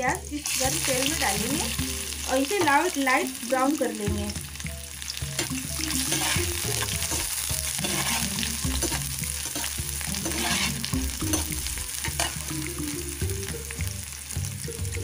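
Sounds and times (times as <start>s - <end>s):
onions sizzling in oil: 0.0s - 15.0s
spoon scraping a pan: 5.3s - 12.5s.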